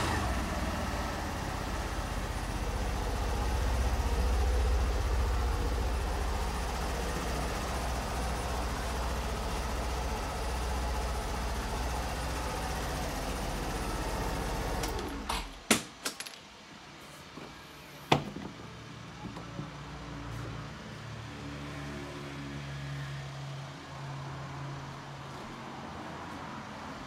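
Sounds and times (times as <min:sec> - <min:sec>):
scooter engine idling: 0:00.0 - 0:15.3.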